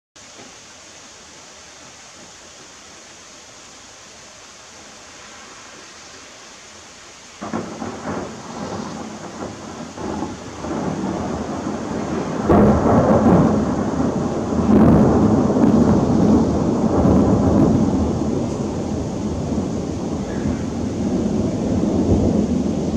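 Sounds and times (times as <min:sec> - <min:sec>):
heavy rain: 0:00.2 - 0:22.9
thunder rumbling and clapping: 0:07.4 - 0:22.9.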